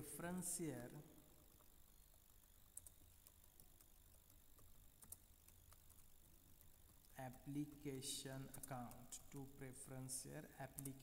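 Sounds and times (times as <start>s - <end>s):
low steady hum: 0.0s - 11.0s
keyboard clicks: 2.5s - 9.4s, 10.6s - 11.0s.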